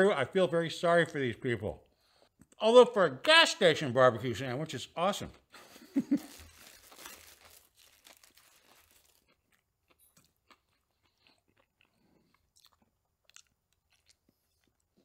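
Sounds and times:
foil wrapper crinkling: 5.9s - 9.6s
biting and chewing sandwich: 6.2s - 15.0s.

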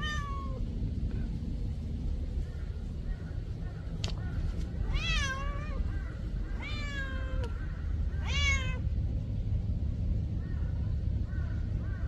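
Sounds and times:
cat meowing: 0.0s - 0.6s, 4.8s - 8.9s.

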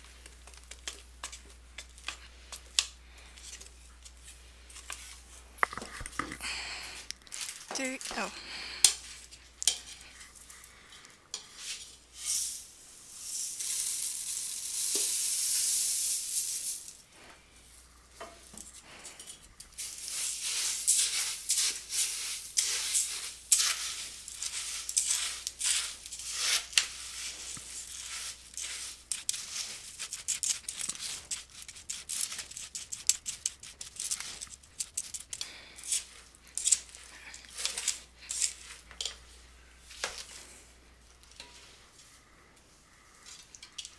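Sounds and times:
spatula stirring crackling cereal: 0.0s - 6.2s, 6.9s - 43.9s
cereal poured into metal pot: 11.6s - 17.1s, 19.8s - 34.5s
spatula scraping pot: 18.9s - 39.2s.

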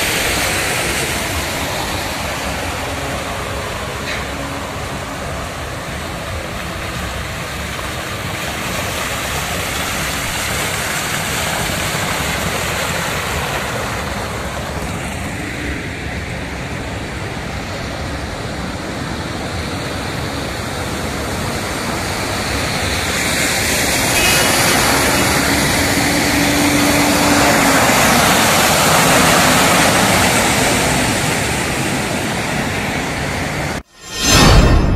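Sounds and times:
water splashing from tyres: 0.0s - 16.0s, 19.7s - 33.8s
vehicle engines running: 22.7s - 33.8s.

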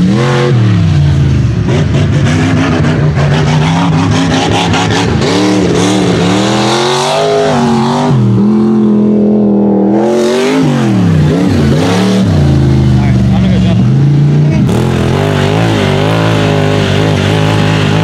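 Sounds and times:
buggy engine revving: 0.0s - 18.0s.

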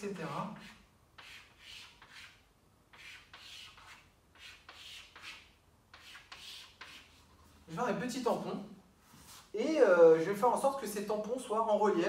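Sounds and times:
chalk scraping on a chalkboard: 0.3s - 7.6s.

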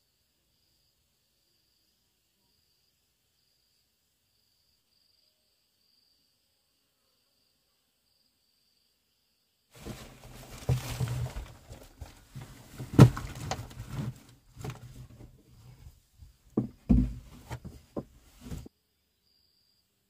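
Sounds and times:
clothing and backpack rustling: 9.8s - 18.7s
thumps on wooden boards: 9.8s - 18.7s.

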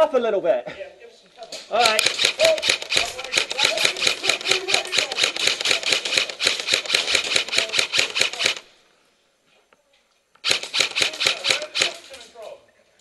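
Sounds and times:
airsoft gun automatic fire: 1.8s - 8.7s, 10.4s - 12.3s.

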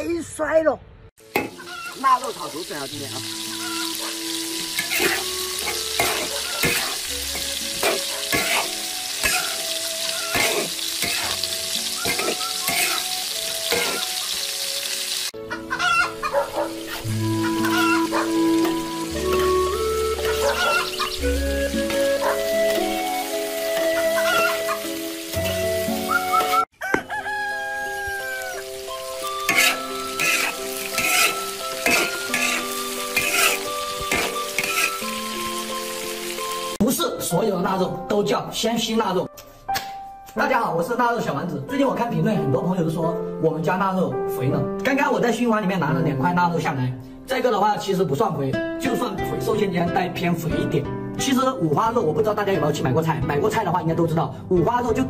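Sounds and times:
meat sizzling in a wok: 1.2s - 36.8s
metal spatula scraping a wok: 4.7s - 14.1s, 29.4s - 35.2s
rooster crowing: 15.5s - 16.5s, 17.4s - 18.3s, 20.2s - 21.2s, 24.0s - 24.8s, 26.1s - 28.8s.

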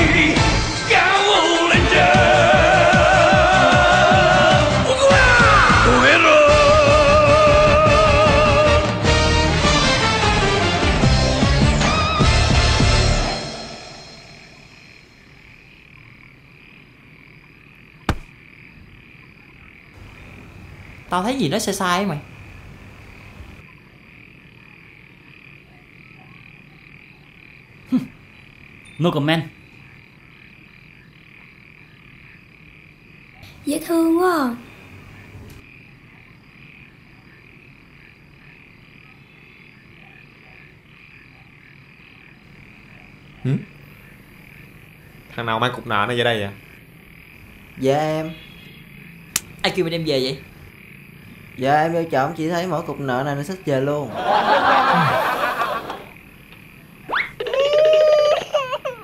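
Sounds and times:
frogs and insects chirring: 11.2s - 59.0s
sharp click: 18.1s - 18.3s, 49.3s - 49.6s.

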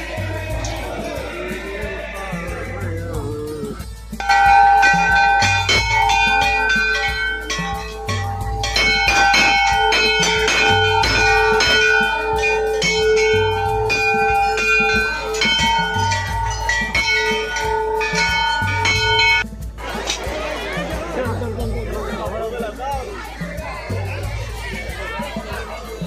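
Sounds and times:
brass bells ringing: 0.0s - 26.0s.

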